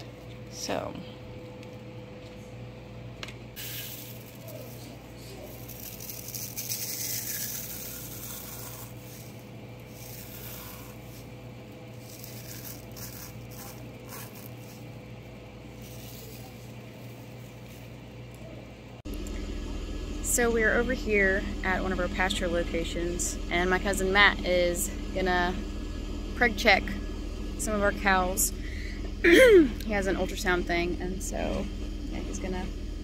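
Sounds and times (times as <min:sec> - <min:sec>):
dried herbs crackling and rustling: 0:03.6 - 0:18.3.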